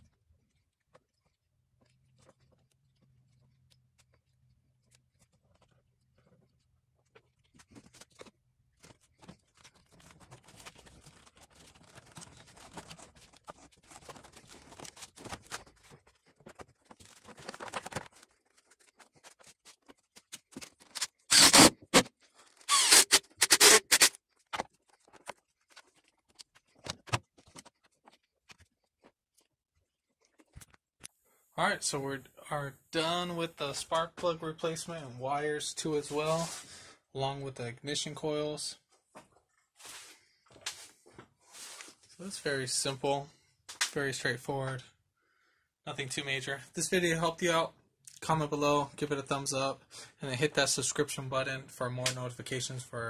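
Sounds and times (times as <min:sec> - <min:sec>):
rustling and scraping of wires: 0:00.0 - 0:30.8, 0:35.7 - 0:37.0, 0:38.8 - 0:44.0.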